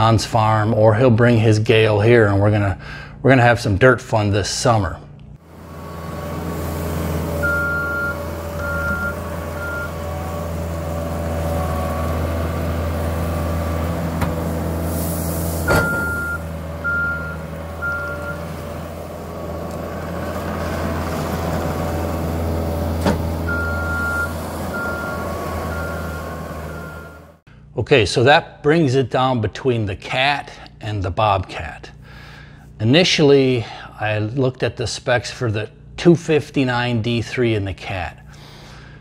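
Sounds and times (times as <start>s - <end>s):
diesel engine running under load: 5.4s - 27.5s
backup alarm beeping: 7.4s - 10.4s, 15.7s - 18.6s, 23.5s - 27.3s.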